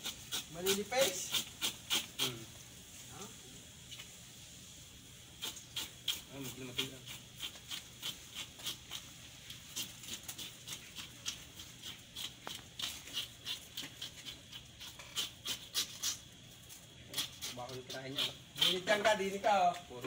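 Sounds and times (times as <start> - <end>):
knife scraping fish scales: 0.0 - 2.4, 5.4 - 16.3, 17.1 - 19.0.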